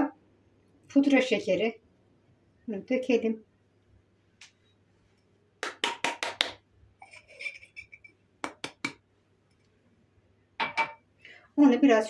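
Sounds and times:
glass tapping plastic bowl: 10.6 - 11.0.

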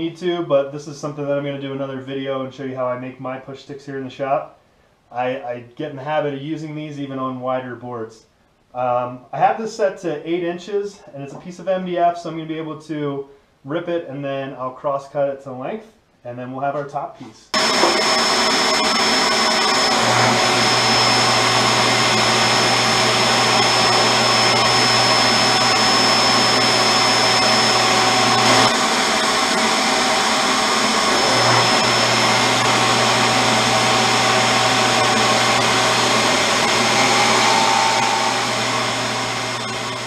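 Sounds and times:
table saw cutting board: 17.6 - 40.0
low note: 36.2 - 40.0.

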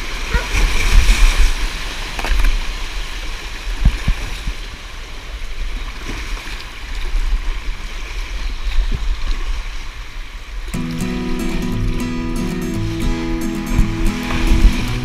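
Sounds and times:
creek water rushing and splashing: 0.0 - 15.0
kayak knocking: 10.8 - 15.0.

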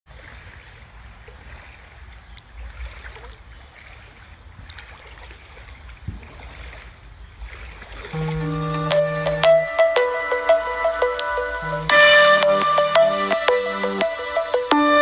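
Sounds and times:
running water: 0.1 - 15.0
wind rumble on microphone: 5.7 - 7.6.

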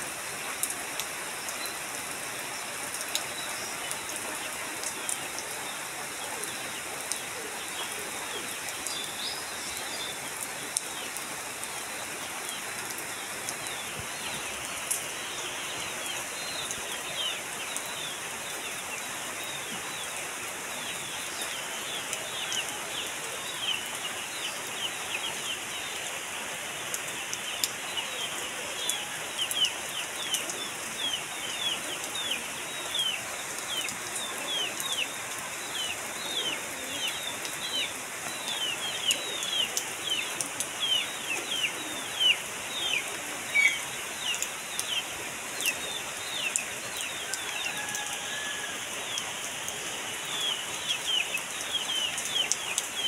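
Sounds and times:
rain on tin roof: 0.0 - 53.0
birds chirping: 26.8 - 53.0.

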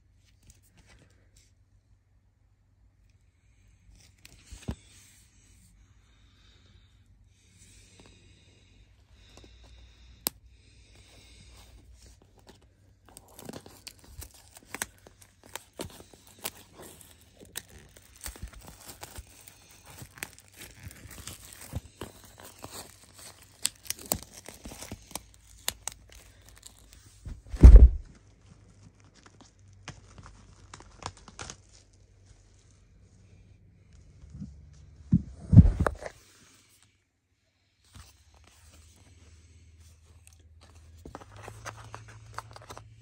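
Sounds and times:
plastic wrap crinkling and tearing: 12.0 - 32.8, 40.2 - 43.0
loud low thump: 27.3 - 28.1.

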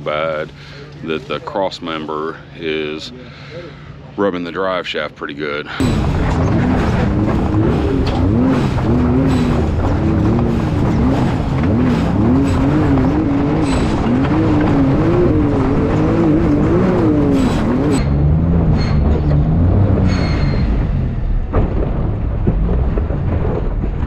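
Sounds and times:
buggy engine revving: 5.8 - 24.0.

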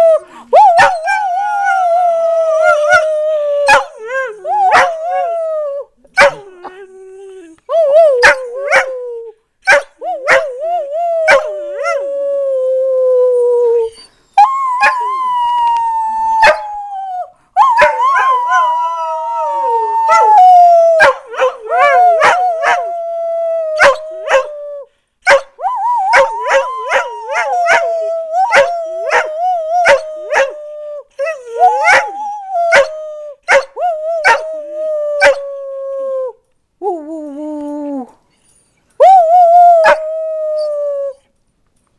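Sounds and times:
dogs howling: 17.6 - 23.1, 26.0 - 30.6, 31.2 - 33.0.

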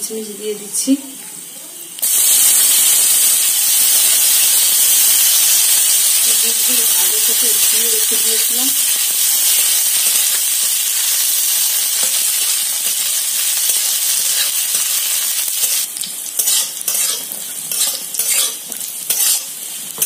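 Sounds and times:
nuts sizzling in oil: 1.8 - 20.0
metal spatula scraping pan: 16.4 - 19.5.

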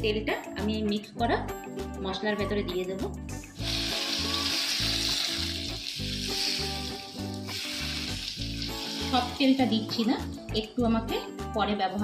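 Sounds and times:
music with steady beat: 0.3 - 12.0
hot oil sizzling: 3.6 - 10.5.

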